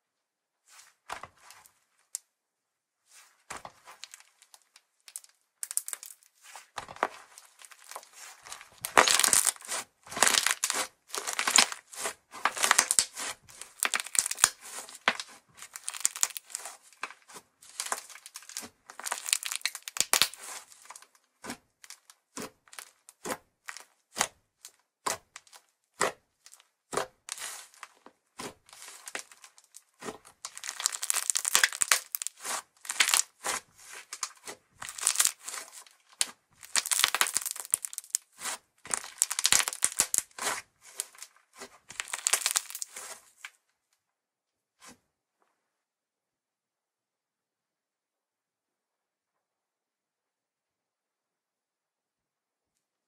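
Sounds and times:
slime crackling as stretched: 3.8s - 6.3s, 7.0s - 21.1s, 28.7s - 41.3s, 41.9s - 43.5s.

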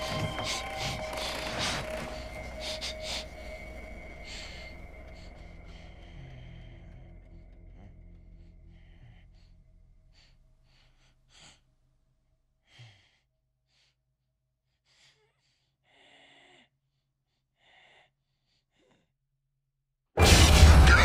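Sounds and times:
low drone: 0.0s - 11.2s.

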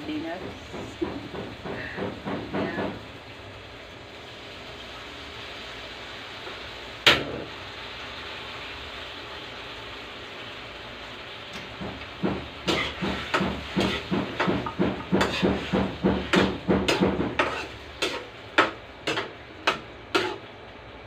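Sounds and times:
frying hiss: 0.0s - 21.0s
metal spatula scraping steel wok: 12.7s - 14.5s, 15.1s - 20.5s.

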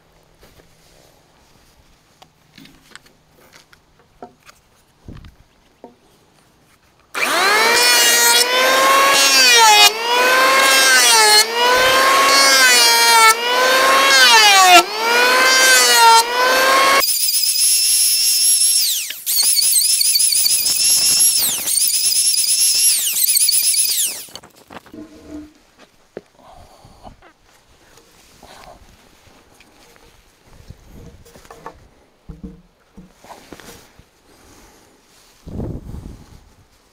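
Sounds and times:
electric planer motor whining: 7.2s - 24.4s.

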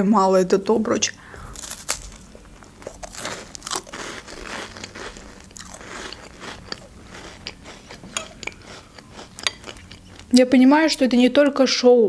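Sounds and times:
cracker crunching while chewed: 1.4s - 10.4s.

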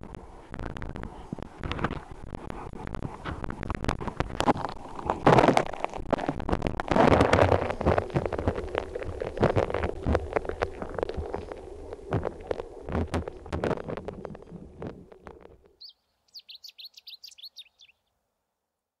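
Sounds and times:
river current rushing and gurgling: 4.6s - 15.6s
high chirps: 15.8s - 18.0s.

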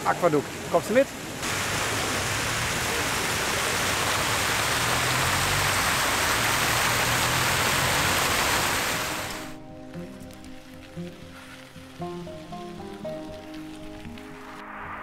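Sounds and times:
fountain water splashing: 0.0s - 9.6s.

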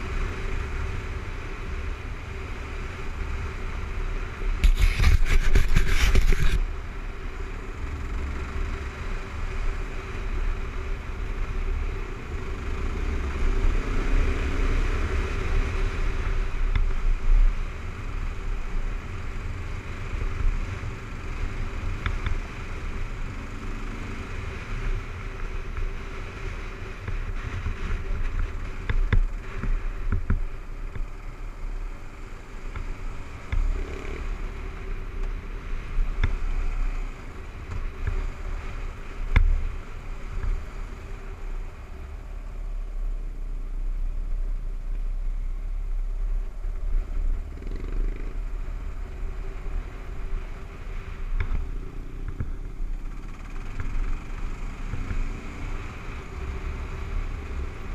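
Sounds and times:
wind rumble on microphone: 0.0s - 57.9s.

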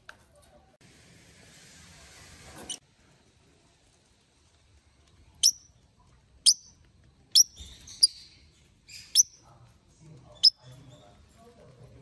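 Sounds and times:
birds chirping high: 5.4s - 5.7s, 6.5s - 9.4s.

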